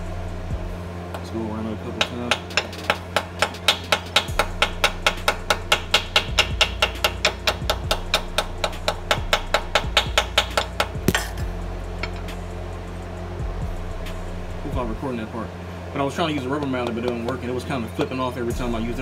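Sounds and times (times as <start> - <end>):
hammer tapping metal: 1.9 - 12.4, 16.3 - 18.2.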